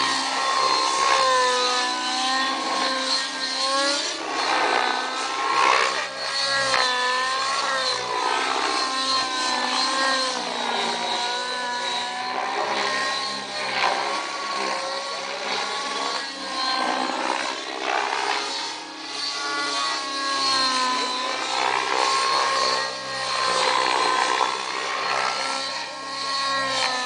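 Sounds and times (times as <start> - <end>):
model helicopter engine and rotor: 0.0 - 27.0.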